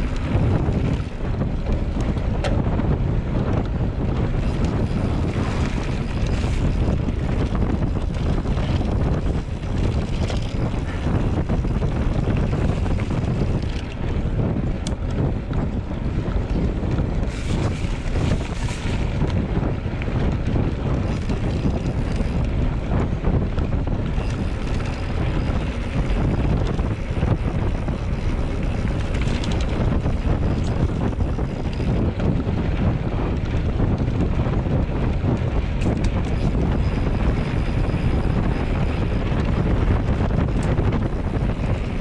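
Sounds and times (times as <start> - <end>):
wind buffeting microphone: 0.0 - 42.0.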